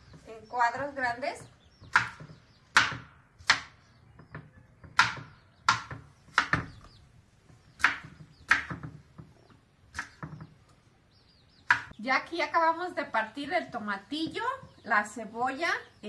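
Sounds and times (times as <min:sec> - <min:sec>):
knife chopping on cutting board: 0:07.8 - 0:09.0.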